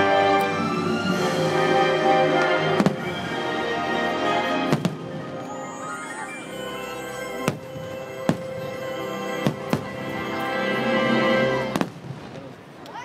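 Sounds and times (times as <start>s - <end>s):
firework bangs: 4.6s - 5.8s, 7.4s - 10.2s, 11.6s - 12.8s.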